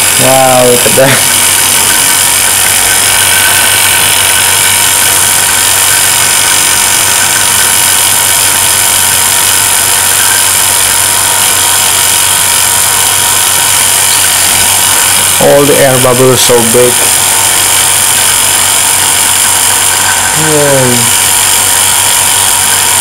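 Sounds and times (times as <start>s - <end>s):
vacuum pump hissing and humming: 0.0s - 23.0s.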